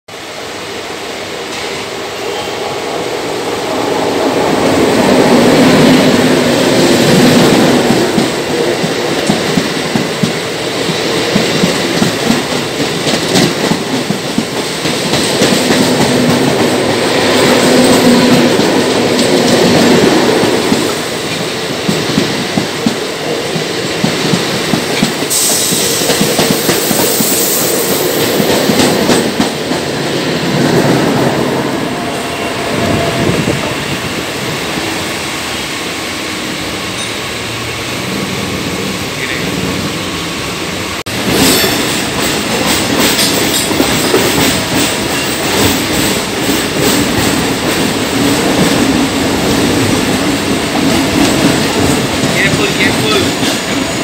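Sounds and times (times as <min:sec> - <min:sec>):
passing train rushing: 0:00.1 - 0:54.0
train wheels clattering over joints: 0:07.0 - 0:30.0, 0:41.1 - 0:54.0.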